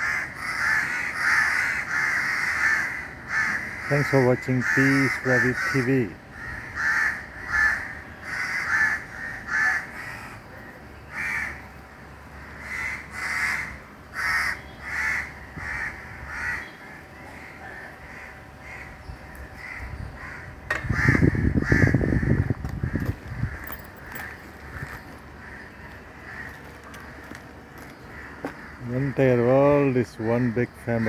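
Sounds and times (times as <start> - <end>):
crows cawing: 0.0 - 29.4, 30.1 - 31.0
loud low noise: 11.0 - 26.4.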